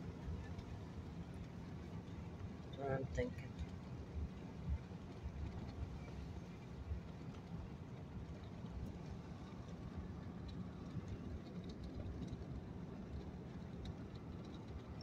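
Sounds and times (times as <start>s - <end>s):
vehicle cabin road noise: 0.0s - 15.0s.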